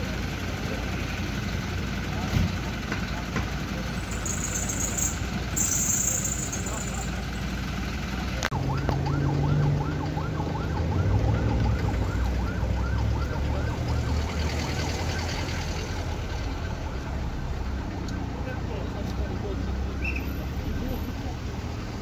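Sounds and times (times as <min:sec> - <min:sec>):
low engine rumble: 0:00.0 - 0:22.0
siren yelping: 0:08.4 - 0:18.3.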